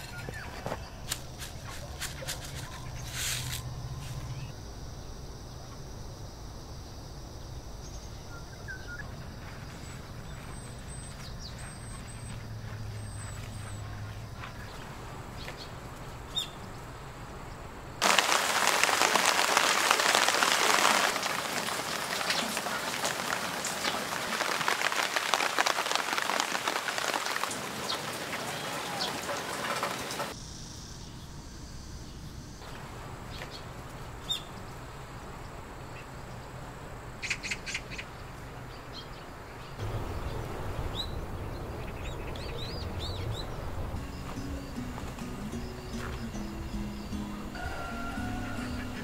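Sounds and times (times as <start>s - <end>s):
faint bird chirps: 7.8s - 14.8s
heavy rain falling: 18.0s - 30.4s, 39.8s - 44.4s.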